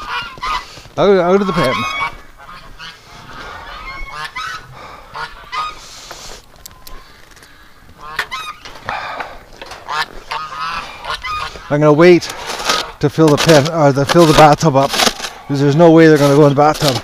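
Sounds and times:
geese honking: 0.0 - 17.0.

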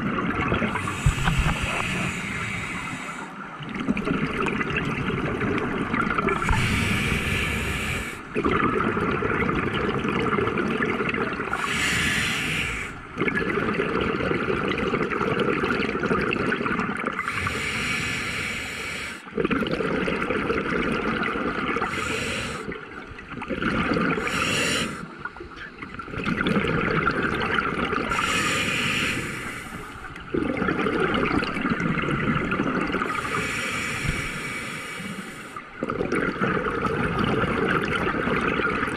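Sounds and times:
regulator breath hiss: 0.8 - 3.4, 6.4 - 8.2, 11.6 - 13.0, 17.4 - 19.2, 21.9 - 22.7, 24.2 - 25.0, 28.1 - 30.0, 33.2 - 35.6.

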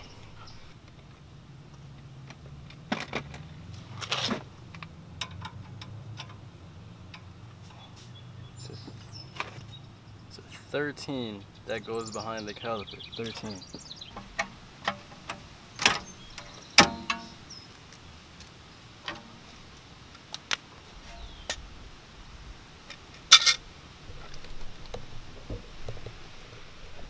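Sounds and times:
metal knocks: 16.8 - 17.4.

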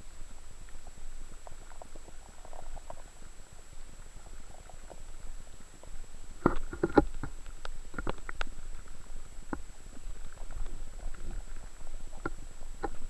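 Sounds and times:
faint high whine: 0.0 - 13.0
underwater water rumble: 0.0 - 13.0
clicks and knocks underwater: 4.3 - 13.0.

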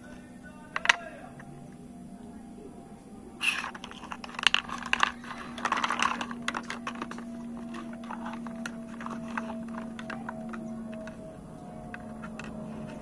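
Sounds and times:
plastic toy dishes clattering: 0.7 - 1.1, 3.4 - 13.0.

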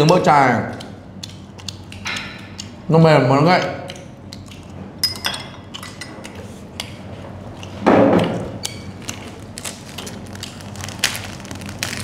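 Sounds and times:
dishes clinking: 5.0 - 6.3.

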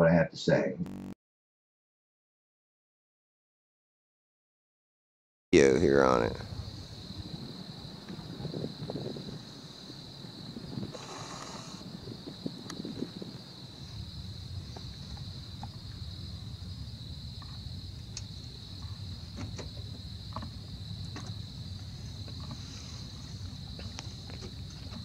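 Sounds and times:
insects trilling: 5.6 - 25.0
low rumble of night ambience: 5.6 - 25.0
faint ticks: 17.4 - 19.0.

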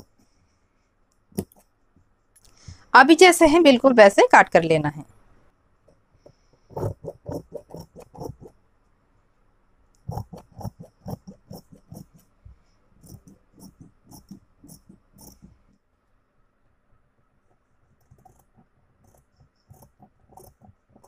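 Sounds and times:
scissors snipping fabric: 6.7 - 8.5, 10.0 - 12.2, 13.0 - 15.6.

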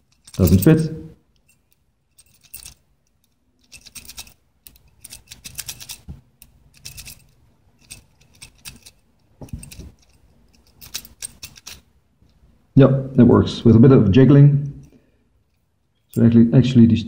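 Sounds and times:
keys jangling on ring: 0.0 - 11.9
key clicking in lock: 2.2 - 11.9.

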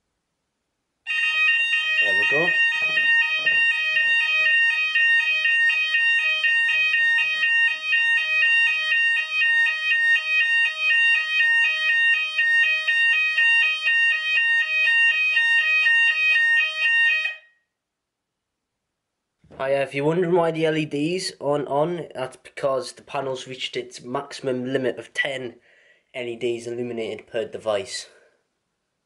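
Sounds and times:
two-tone fire alarm: 1.1 - 17.8.

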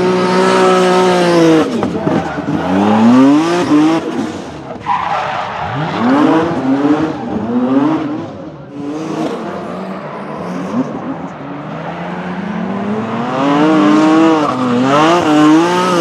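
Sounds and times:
car engine revving hard: 0.0 - 4.6, 5.6 - 16.0
tyres squealing on asphalt: 0.4 - 13.0.

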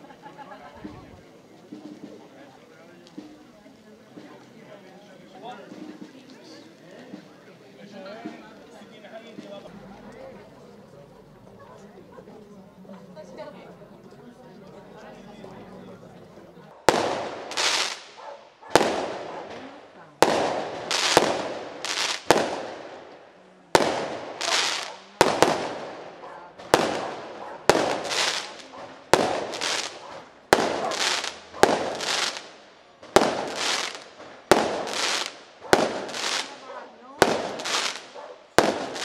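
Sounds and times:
fireworks bangs: 16.6 - 39.0
firework stars bursting: 16.8 - 39.0.

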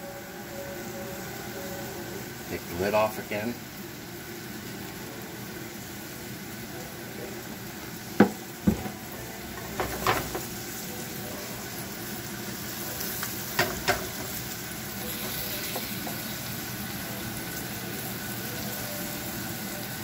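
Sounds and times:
shrimp sizzling in oil: 0.0 - 20.0
spatula knocking on a pan: 8.2 - 9.0, 13.6 - 14.3.

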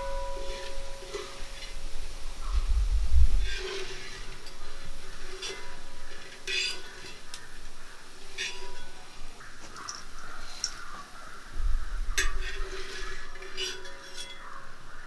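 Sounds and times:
metal utensil clinking in pan: 0.0 - 1.7, 3.4 - 7.5, 8.2 - 9.1, 12.2 - 14.8.

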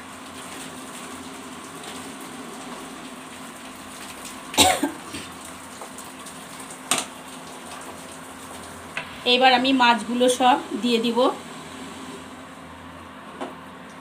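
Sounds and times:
person coughing: 4.6 - 5.3.

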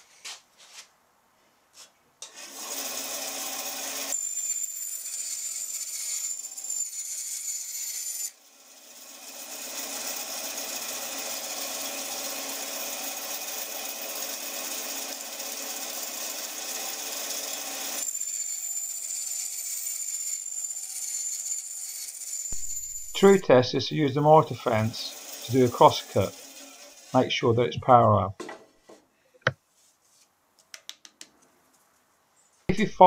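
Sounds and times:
bandsaw whining: 2.2 - 27.5
saw blade cutting wood: 2.2 - 27.8.

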